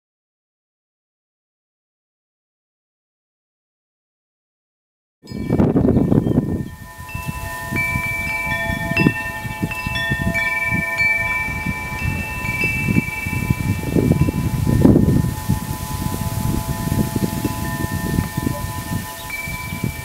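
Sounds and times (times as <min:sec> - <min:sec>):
wind buffeting microphone: 0:05.3 - 0:20.0
wind chimes ringing: 0:05.3 - 0:20.0.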